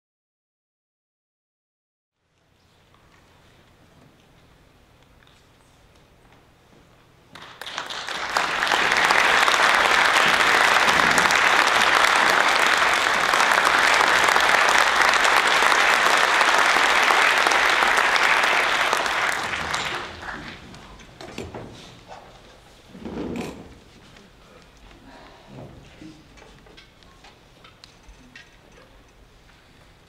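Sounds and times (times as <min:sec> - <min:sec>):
audience applauding: 0:07.3 - 0:21.1.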